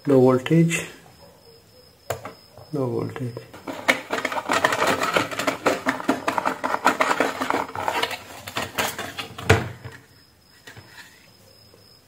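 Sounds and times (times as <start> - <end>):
light fixture parts rattling: 3.5 - 10.0.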